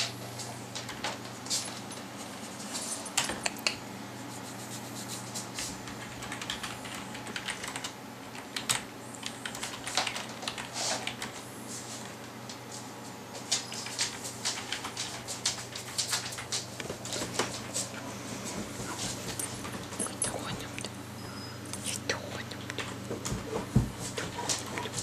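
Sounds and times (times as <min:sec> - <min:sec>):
low steady hum: 0:00.0 - 0:25.0
computer keyboard typing: 0:05.8 - 0:11.4, 0:13.6 - 0:16.7.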